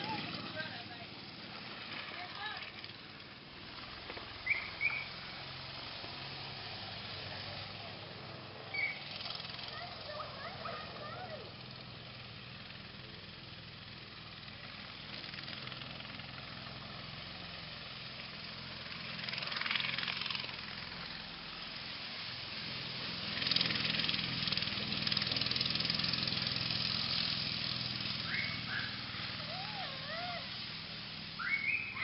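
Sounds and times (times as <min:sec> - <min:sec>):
go-kart engine running: 0:00.0 - 0:32.0
rushing hiss of kart passing: 0:00.0 - 0:32.0.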